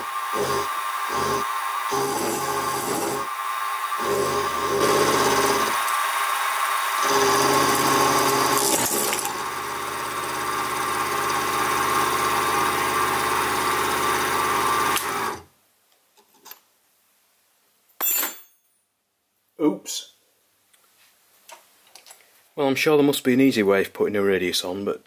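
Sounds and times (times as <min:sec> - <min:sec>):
milling machine cutting metal: 0:00.0 - 0:15.4.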